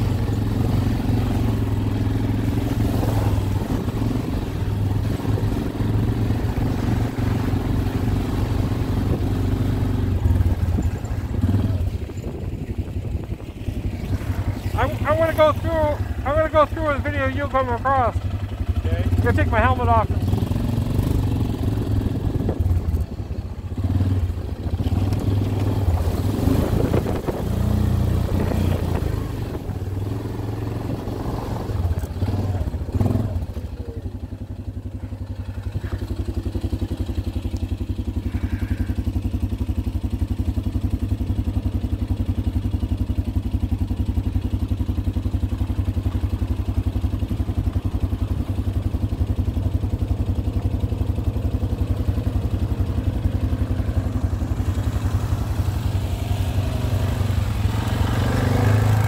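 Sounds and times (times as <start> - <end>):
atv engine idling: 0.0 - 59.0.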